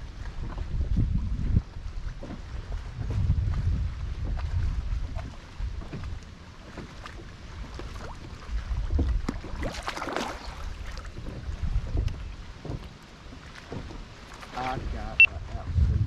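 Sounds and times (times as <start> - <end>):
wind buffeting microphone: 0.0 - 6.4, 7.1 - 12.9, 13.7 - 16.0
water slapping against boat hull: 0.0 - 16.0.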